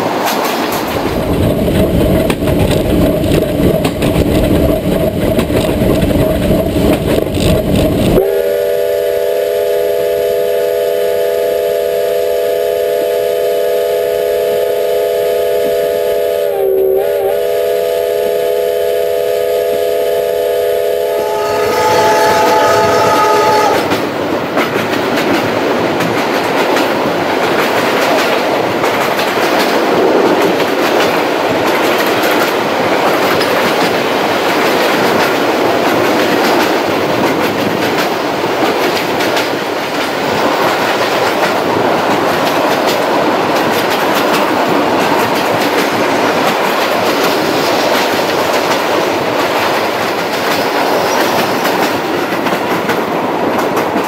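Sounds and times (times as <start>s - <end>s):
wheels clicking over rail joints: 0.0s - 8.3s, 22.2s - 54.0s
train rolling rumble: 0.0s - 54.0s.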